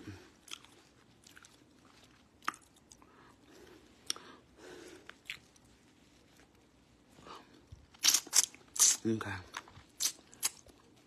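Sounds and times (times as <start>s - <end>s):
person chewing food: 0.3s - 6.6s.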